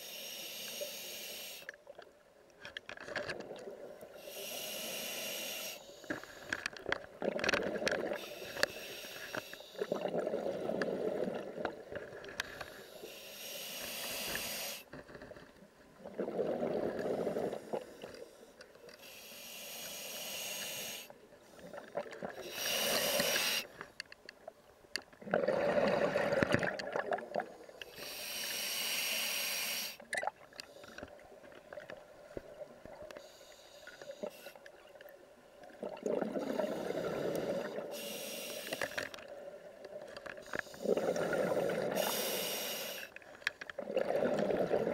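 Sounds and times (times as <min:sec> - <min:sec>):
regulator hiss on inhale: 0:00.0 - 0:01.8, 0:04.1 - 0:06.7, 0:08.1 - 0:10.8, 0:12.4 - 0:14.9, 0:17.3 - 0:24.0, 0:27.6 - 0:30.0, 0:33.1 - 0:34.8, 0:36.4 - 0:39.2, 0:40.4 - 0:43.2
bubbling on exhale: 0:25.2 - 0:27.3.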